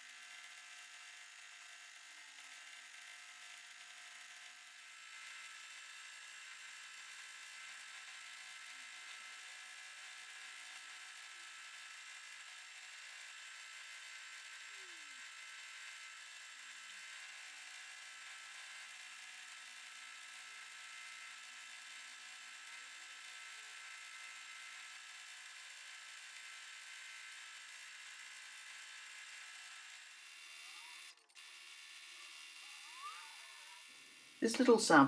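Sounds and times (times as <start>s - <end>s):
sewing machine whirring: 25.8s - 35.0s.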